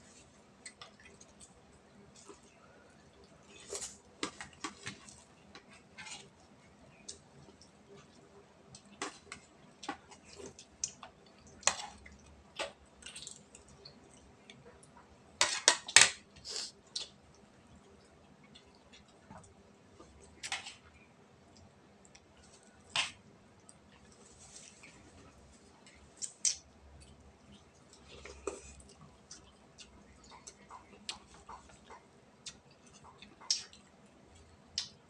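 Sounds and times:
chewing noises: 23.6 - 35.0.

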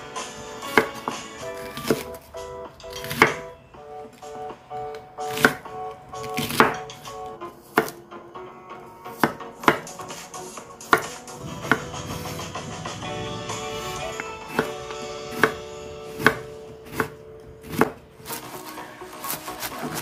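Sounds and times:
light background music: 0.0 - 20.0
knife chopping on cutting board: 0.7 - 2.2, 2.9 - 3.5, 5.2 - 7.0, 7.6 - 8.0, 9.1 - 10.2, 10.8 - 12.3, 14.5 - 18.4.

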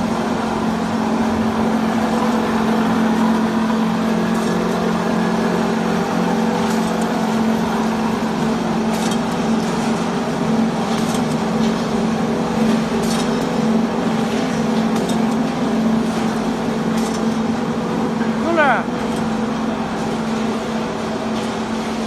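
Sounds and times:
machinery hum: 0.0 - 22.0.

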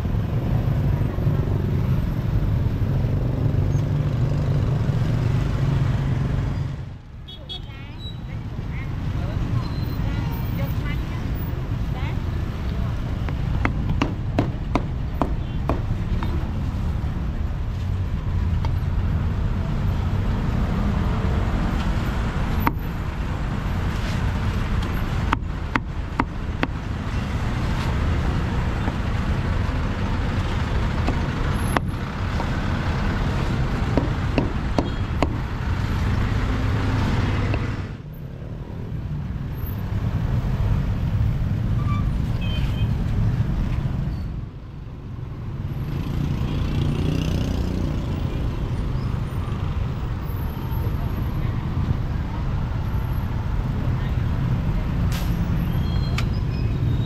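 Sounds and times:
traffic rumble: 0.0 - 57.0
cleaver chopping on wooden block: 13.2 - 15.9, 33.9 - 35.4.

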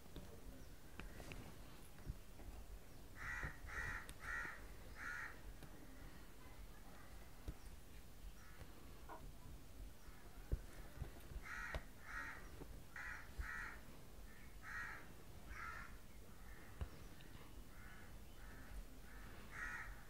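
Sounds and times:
crow cawing: 3.2 - 5.4, 11.4 - 16.7, 17.7 - 20.0.

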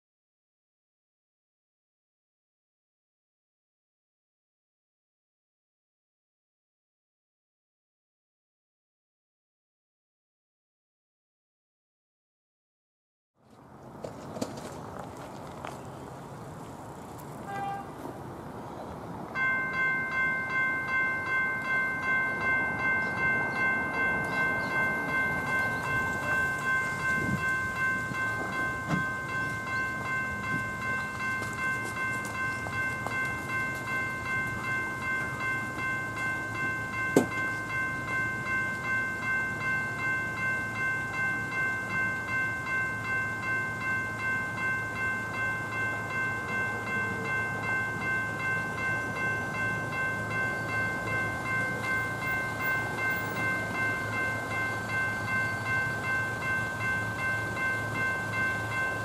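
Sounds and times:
level crossing bells ringing: 19.3 - 59.0.

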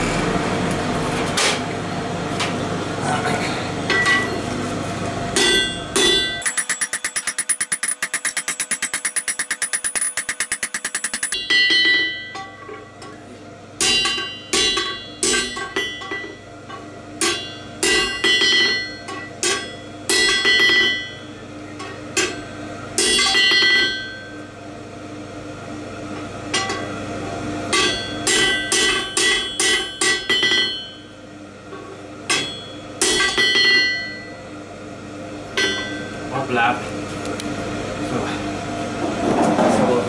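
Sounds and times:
hammer blows ringing on anvil: 5.4 - 12.4.

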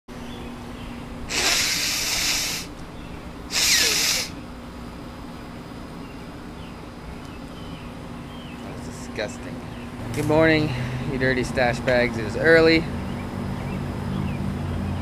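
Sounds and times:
man blowing his nose: 1.3 - 2.7, 3.5 - 4.3.

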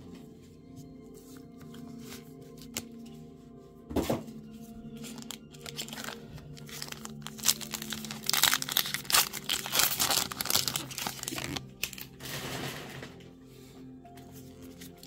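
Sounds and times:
foil wrapper crinkling and tearing: 5.0 - 12.6.

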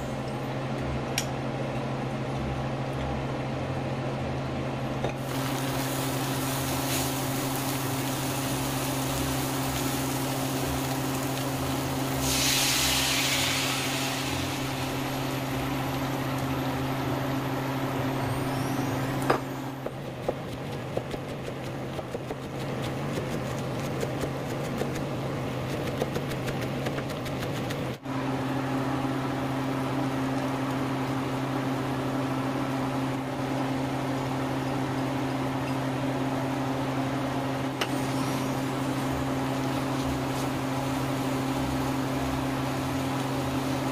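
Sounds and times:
shrimp sizzling in frying pan: 5.2 - 17.5, 37.9 - 43.9.

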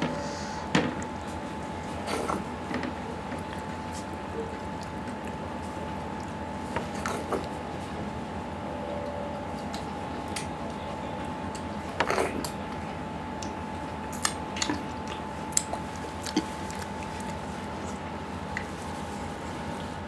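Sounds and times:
faint steady hum: 0.0 - 20.0
man chewing wetly: 0.6 - 8.1, 9.4 - 20.0
lip smacks and squelches: 3.3 - 7.6, 13.4 - 19.0.

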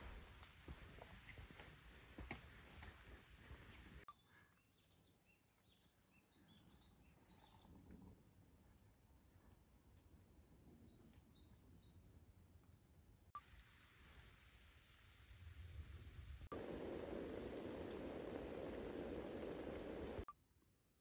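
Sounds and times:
bird chirping: 0.0 - 0.4, 3.5 - 7.7
faint outdoor hush: 16.4 - 20.3.

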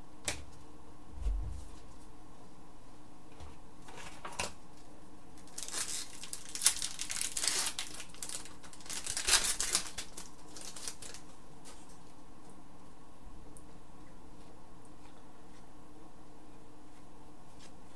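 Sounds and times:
wrapper sharp snaps: 5.4 - 11.8
wrapper crinkling and tearing: 5.4 - 11.9.

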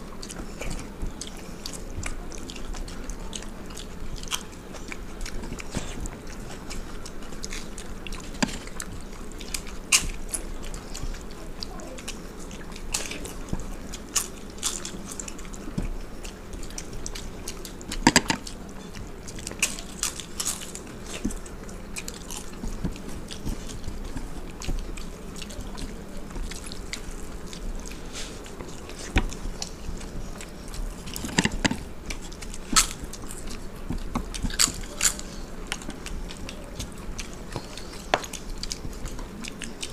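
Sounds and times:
crisp crunching bites: 19.4 - 24.8, 25.4 - 38.9.

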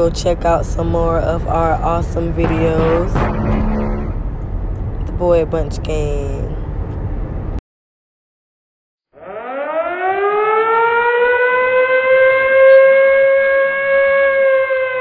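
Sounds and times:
siren wailing: 9.1 - 15.0.

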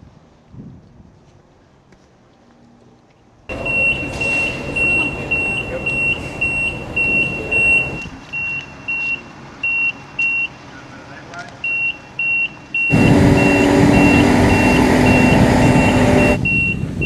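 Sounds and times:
machinery rumble: 3.5 - 8.2, 12.8 - 17.0
forklift warning beeper: 3.5 - 10.6, 11.6 - 17.0.

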